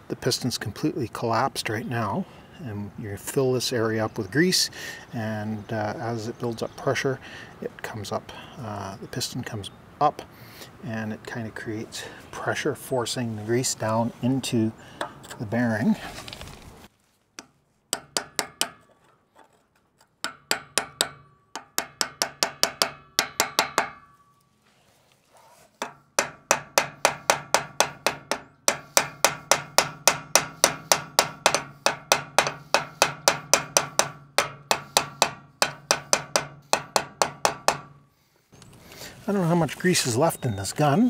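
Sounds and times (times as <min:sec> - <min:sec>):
hammer tapping metal: 0:17.4 - 0:19.0, 0:20.2 - 0:24.4, 0:25.8 - 0:38.0.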